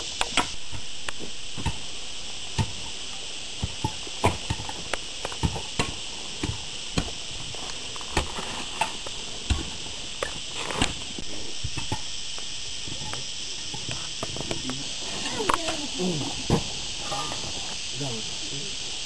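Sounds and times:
high-pitched insect buzzing: 0.0s - 19.0s
sharp clicks and knocks: 3.6s - 14.8s.

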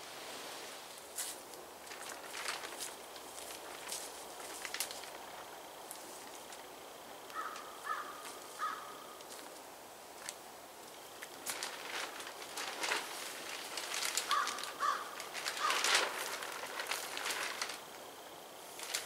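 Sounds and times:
footsteps crunching dry leaves: 1.0s - 6.7s, 7.4s - 9.6s, 11.2s - 18.0s
bird calling: 7.3s - 9.2s, 14.2s - 16.0s.

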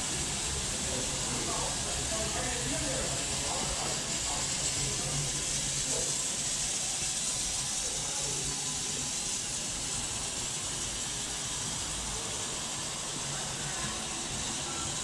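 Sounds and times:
steam hissing from locomotive: 0.0s - 15.0s.

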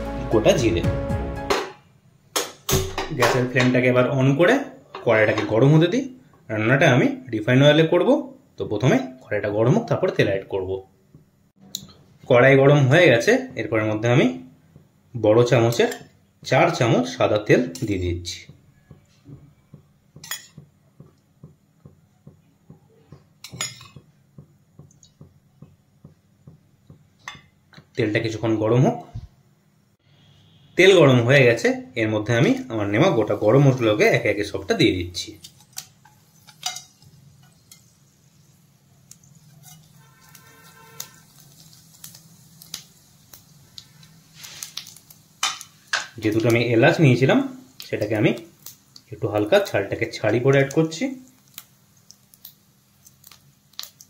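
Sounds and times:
metal spoon clinking on pan: 20.2s - 20.6s, 23.4s - 24.0s, 35.5s - 37.9s
spices crackling in hot oil: 30.4s - 54.0s
brief hiss: 44.3s - 45.0s.

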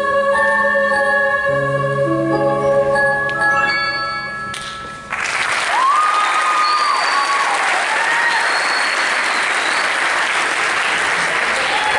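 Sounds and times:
choir singing held chord: 0.0s - 3.0s
audience applause: 5.1s - 11.9s
people cheering: 5.4s - 11.9s.

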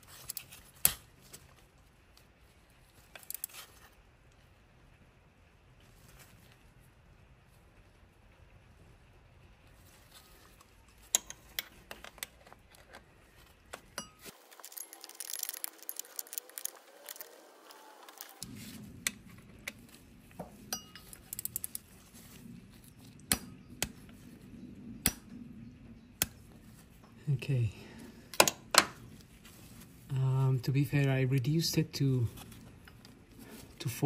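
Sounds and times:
metal tools clinking and clicking: 14.0s - 16.8s, 20.7s - 21.8s.

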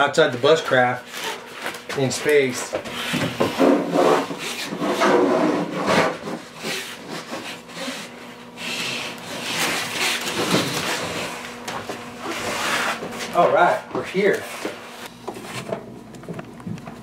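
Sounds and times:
foam sleeve rubbing and scraping: 2.4s - 11.4s, 12.2s - 15.6s.

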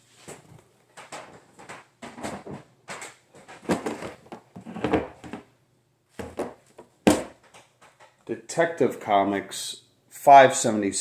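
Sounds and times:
hard plastic cases clacking: 0.3s - 5.5s, 6.2s - 8.2s.

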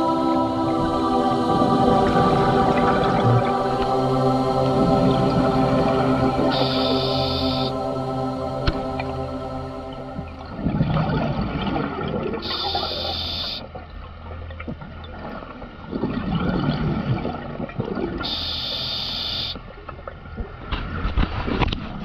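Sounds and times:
exhaled bubbles rushing: 0.0s - 13.2s, 14.4s - 18.5s
regulator hiss on inhale: 18.3s - 19.6s.

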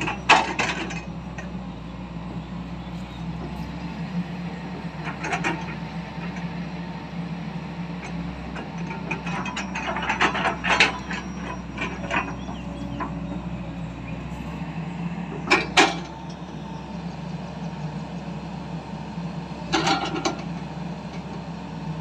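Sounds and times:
excavator engine running: 0.0s - 22.0s.

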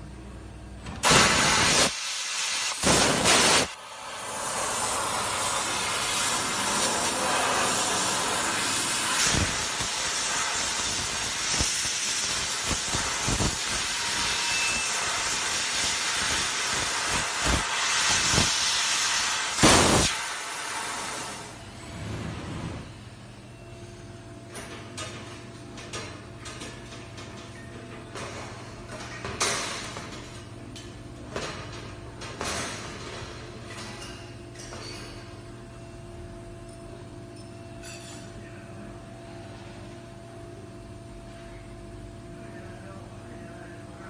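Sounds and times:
steady hiss of gas jet: 1.0s - 21.6s
loud gas blasts: 1.0s - 23.0s.

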